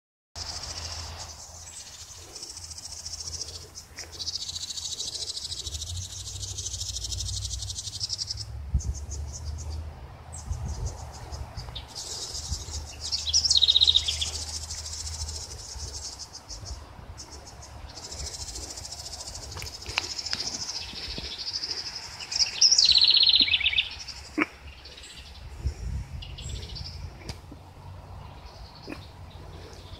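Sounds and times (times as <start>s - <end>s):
insects trilling: 0.4s - 8.6s, 10.9s - 25.2s
wind rumble on microphone: 7.2s - 22.2s, 25.1s - 29.9s.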